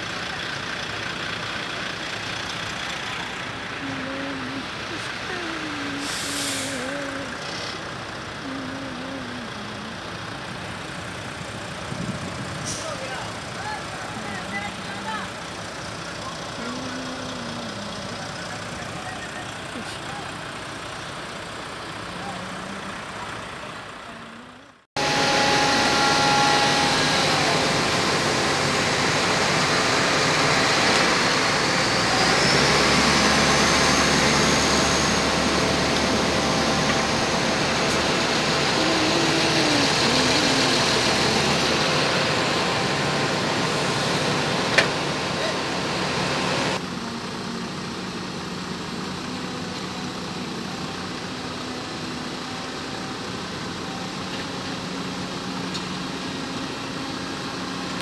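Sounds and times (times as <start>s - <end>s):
diesel machinery engines running: 0.0s - 58.0s
quieter engine hum: 0.0s - 58.0s
high whine: 24.1s - 48.1s.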